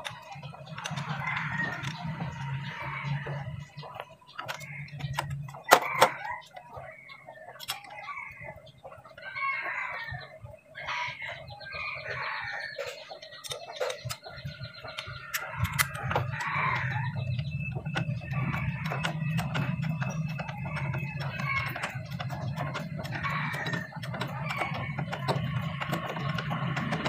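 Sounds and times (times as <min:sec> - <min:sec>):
chickens clucking: 0:00.0 - 0:27.0
rooster crowing: 0:00.9 - 0:03.7, 0:09.3 - 0:12.9, 0:15.3 - 0:17.2.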